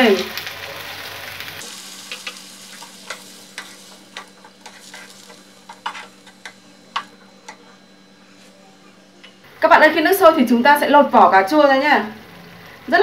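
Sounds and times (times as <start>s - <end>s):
light sizzle: 0.0s - 13.0s
faint steady hum: 1.3s - 13.0s
utensil scraping a frying pan: 1.6s - 8.6s.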